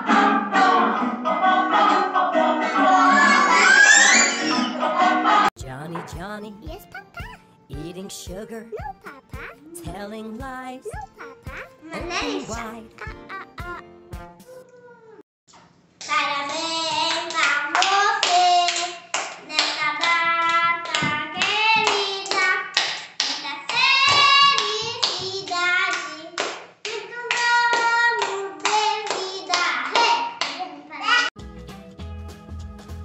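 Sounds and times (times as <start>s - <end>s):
child singing: 5.6s - 13.8s, 16.1s - 31.3s
rhythmic hand clapping: 16.0s - 30.6s.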